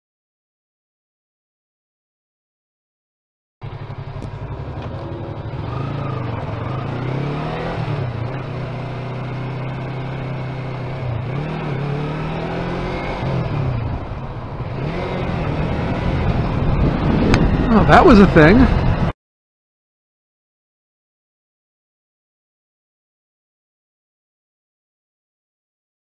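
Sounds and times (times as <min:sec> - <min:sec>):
motorcycle engine running: 0:03.6 - 0:19.1.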